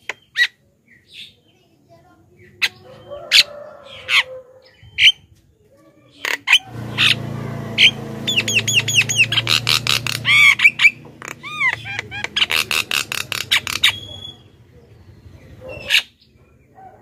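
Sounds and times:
bird squawking and whistling: 6.3s - 7.2s, 7.8s - 14.6s, 15.6s - 16.2s.

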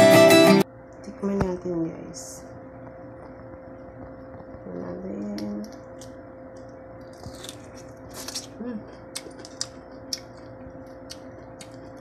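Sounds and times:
shrimp shell cracking: 5.4s - 12.0s.

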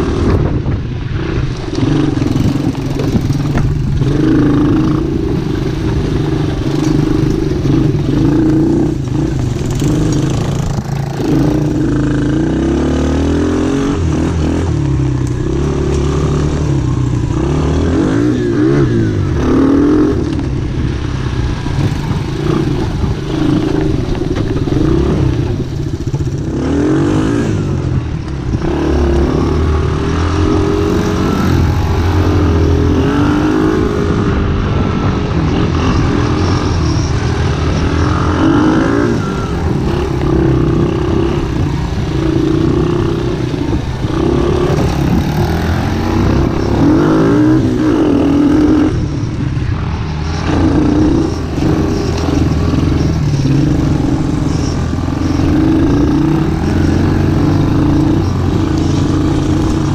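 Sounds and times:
atv engines revving: 0.0s - 59.9s.

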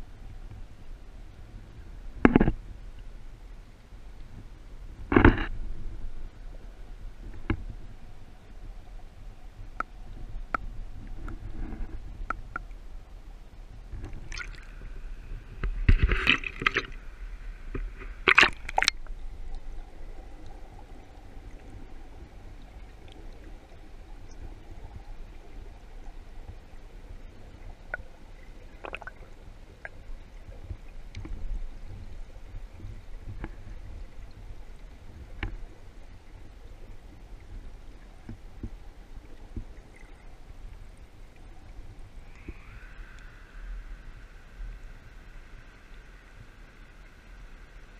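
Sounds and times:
muffled underwater rumble: 0.0s - 47.9s
bursts of water noise: 14.0s - 19.2s, 27.8s - 30.0s.

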